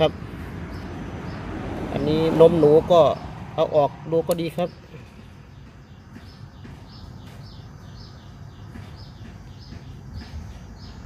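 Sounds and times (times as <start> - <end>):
bird chirping: 0.0 - 11.0.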